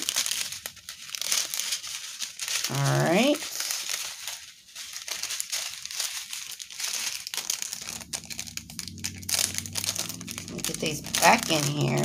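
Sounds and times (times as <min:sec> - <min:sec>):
plastic bags crinkling: 0:00.0 - 0:12.0
low steady hum: 0:07.4 - 0:12.0.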